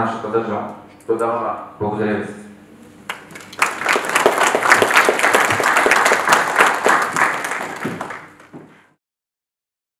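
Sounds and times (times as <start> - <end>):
audience applauding: 3.1 - 8.7.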